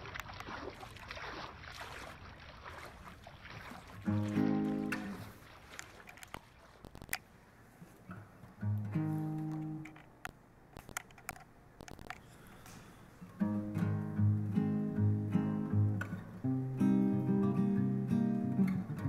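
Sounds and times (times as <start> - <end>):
acoustic guitar strumming: 4.1 - 5.4, 8.6 - 10.0, 13.4 - 19.0
sharp clicks: 5.8 - 7.3, 9.3 - 12.7.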